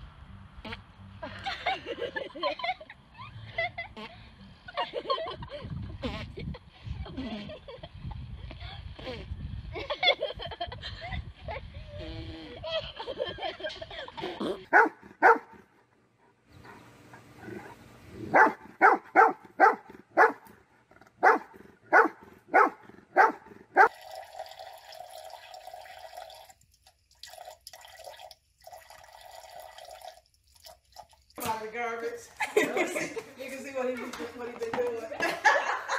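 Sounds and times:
dog barking: 0:14.7 - 0:15.6, 0:18.3 - 0:20.5, 0:21.2 - 0:23.9.

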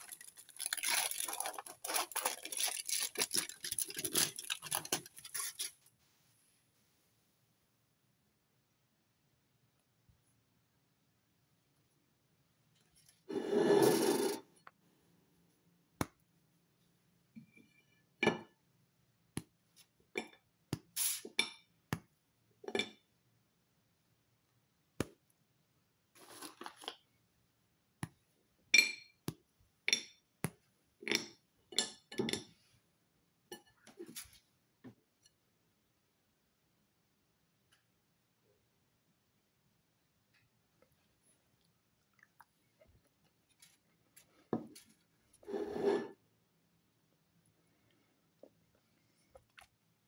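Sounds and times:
scrape on ceramic plate: 0:13.2 - 0:14.5, 0:45.4 - 0:46.2.

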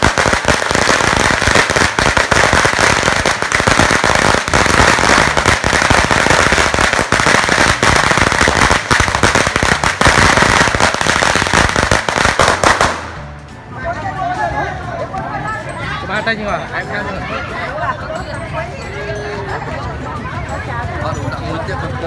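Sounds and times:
firecrackers banging: 0:00.0 - 0:13.5.

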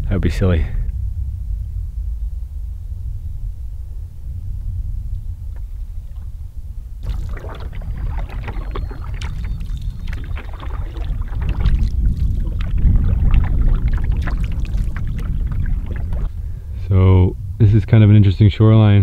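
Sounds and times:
steady low rumble: 0:00.0 - 0:19.0
paddle splashing water: 0:07.0 - 0:16.6.

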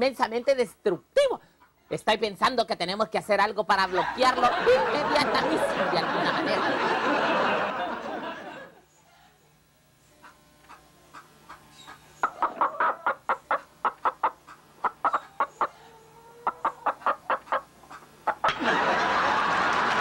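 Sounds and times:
chicken clucking: 0:10.2 - 0:18.6.

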